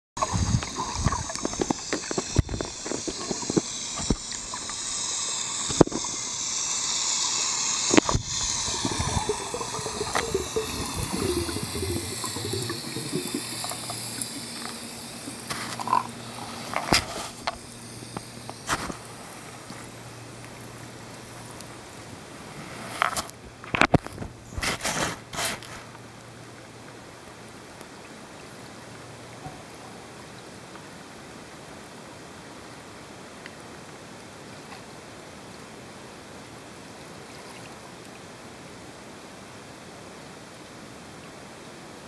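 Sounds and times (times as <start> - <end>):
low steady hum: 0.2 - 22.5
muffled underwater hiss: 0.2 - 30.4.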